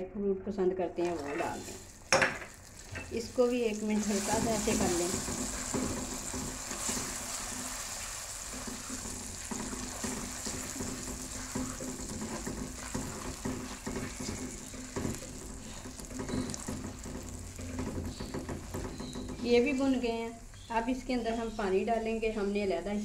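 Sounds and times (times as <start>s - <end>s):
food sizzling in oil: 1.1s - 20.1s
spatula scraping metal pot: 4.0s - 19.7s.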